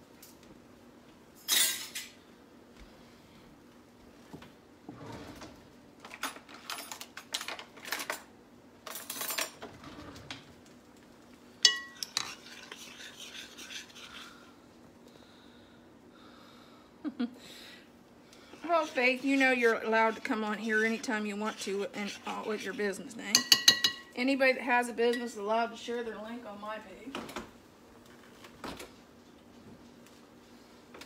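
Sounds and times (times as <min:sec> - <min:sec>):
faint steady hum: 0:00.0 - 0:31.0
utensils clattering on a countertop: 0:01.4 - 0:02.2, 0:05.4 - 0:10.5, 0:23.3 - 0:24.1.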